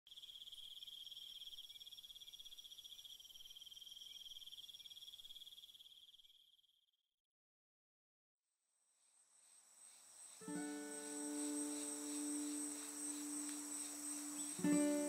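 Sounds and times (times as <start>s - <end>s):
crickets trilling: 0.1s - 6.6s, 9.0s - 15.0s.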